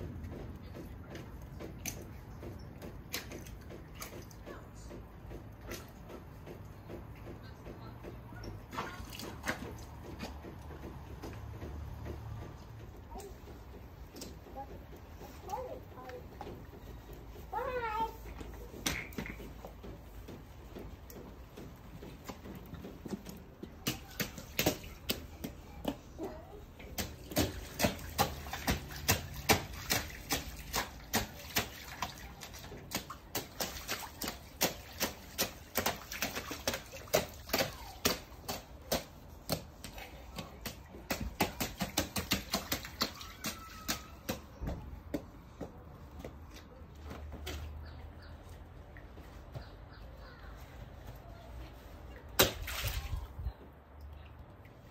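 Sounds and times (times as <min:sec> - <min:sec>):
boots splashing through puddle: 0:21.8 - 0:26.0, 0:27.0 - 0:44.6, 0:52.2 - 0:53.4.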